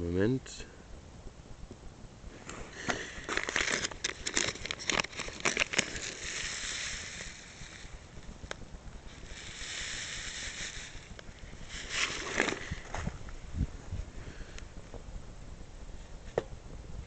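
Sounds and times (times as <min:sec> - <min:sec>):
plastic bag crinkling: 0:02.7 - 0:08.2, 0:09.1 - 0:13.2
oats pouring into metal pot: 0:02.9 - 0:08.0, 0:09.1 - 0:12.9.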